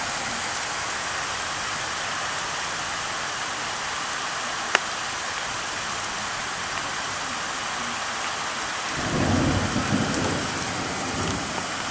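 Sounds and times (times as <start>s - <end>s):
heavy rain hissing: 0.0s - 11.9s
low thunder rumble: 9.0s - 11.9s.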